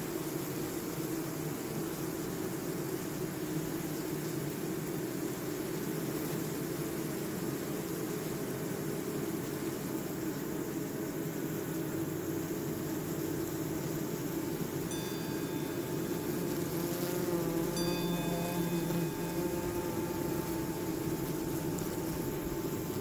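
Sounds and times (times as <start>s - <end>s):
wavering hum: 14.5s - 23.0s
bell-like ringing tones: 14.9s - 23.0s.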